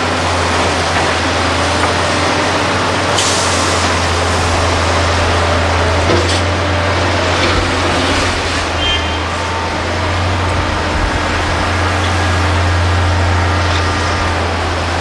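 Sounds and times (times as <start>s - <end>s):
excavator diesel engine drone: 0.0s - 15.0s.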